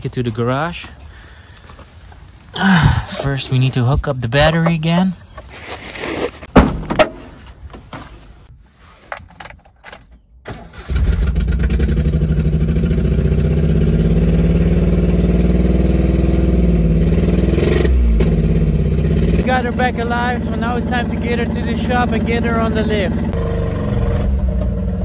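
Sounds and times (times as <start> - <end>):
small petrol engine running: 10.7 - 17.5.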